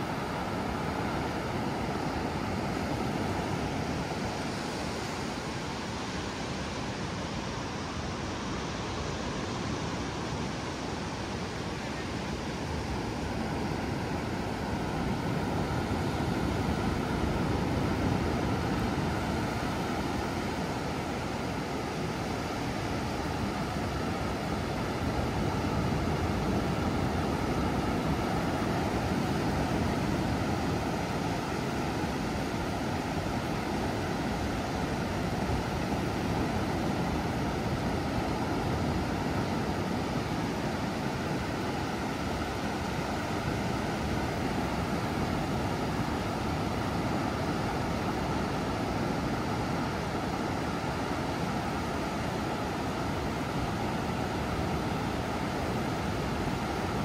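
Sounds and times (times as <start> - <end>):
ocean surf breaking: 12.0 - 57.0.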